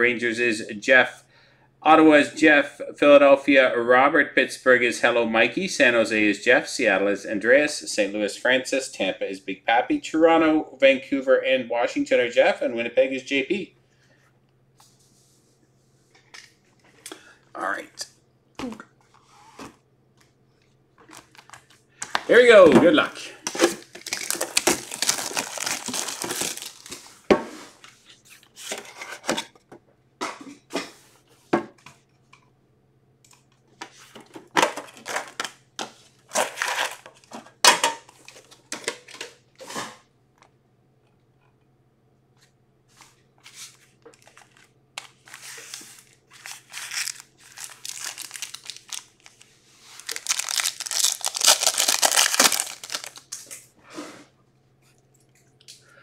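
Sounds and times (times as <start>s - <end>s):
foil packs crinkling: 23.4s - 27.3s, 34.8s - 35.5s, 44.0s - 53.5s
wrapping tearing: 23.6s - 27.2s, 44.2s - 53.5s.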